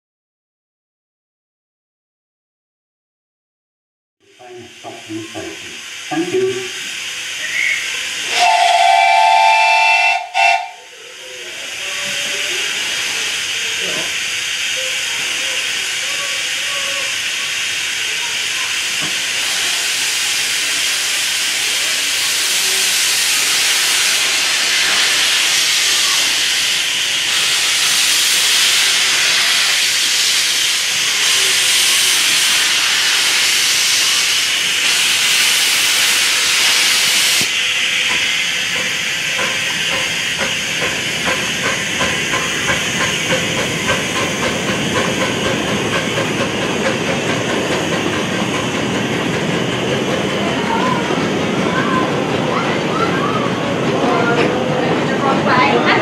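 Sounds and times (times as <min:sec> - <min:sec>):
steam locomotive hissing steam: 0:04.3 - 0:56.0
cylinder drain cocks blowing: 0:07.4 - 0:10.8
locomotive quick regular beat: 0:38.1 - 0:52.3.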